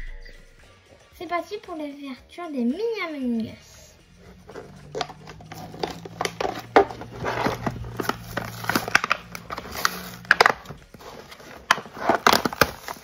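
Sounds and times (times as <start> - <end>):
packaging being torn and crumpled: 4.9 - 13.0.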